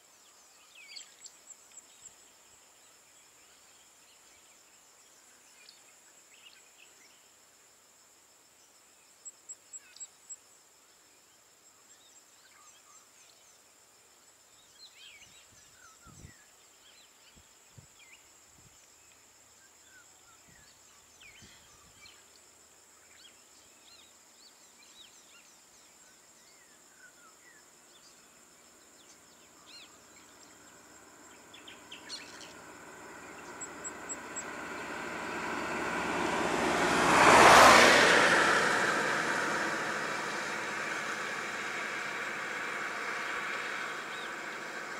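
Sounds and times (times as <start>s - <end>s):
high insect drone: 0.0s - 44.9s
vehicle engine approaching: 29.7s - 44.9s.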